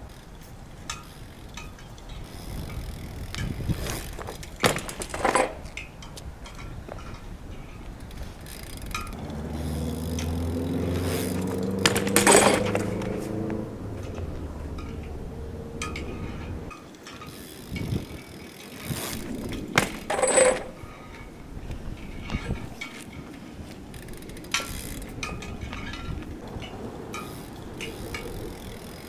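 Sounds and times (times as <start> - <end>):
bike clattering on asphalt: 0.0 - 29.0
metal clanking: 4.6 - 5.8, 11.4 - 17.9, 19.1 - 21.3.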